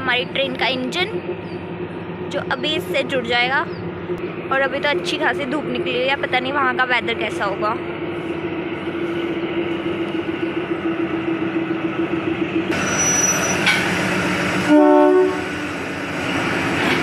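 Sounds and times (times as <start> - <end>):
diesel locomotive humming: 0.0 - 17.0
locomotive horn blast: 14.6 - 15.6.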